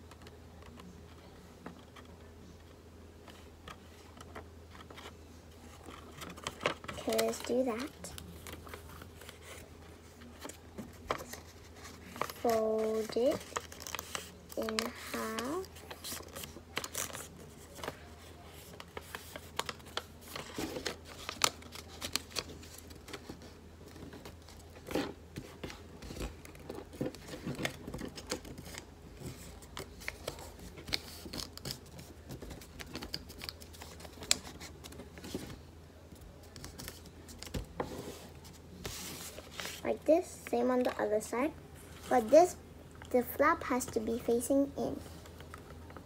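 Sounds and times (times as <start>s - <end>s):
paper rustling and crinkling: 3.2s - 35.6s, 36.2s - 42.5s
fingers scraping paper folds: 11.1s - 17.9s.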